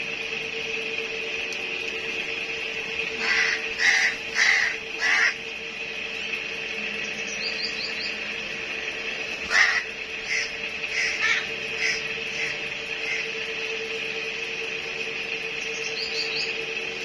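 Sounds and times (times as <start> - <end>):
high-pitched hum: 0.0 - 17.0
crows cawing: 3.2 - 5.4, 9.4 - 13.4.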